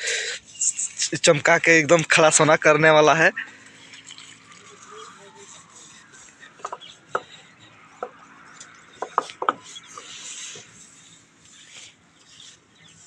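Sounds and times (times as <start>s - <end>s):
scrubbing on metal wheel rim: 0.4s - 13.0s
sharp knocks against metal: 9.0s - 9.7s.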